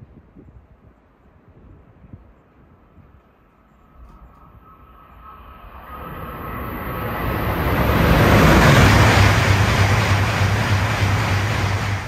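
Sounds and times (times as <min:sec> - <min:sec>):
train rushing past: 0:03.4 - 0:12.0.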